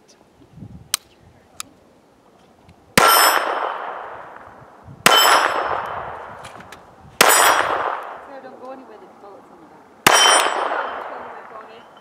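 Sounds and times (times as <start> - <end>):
pistol shots: 3.0 - 6.2, 7.2 - 8.2, 10.0 - 11.9
steel plate target ringing: 5.1 - 5.8, 10.1 - 11.1.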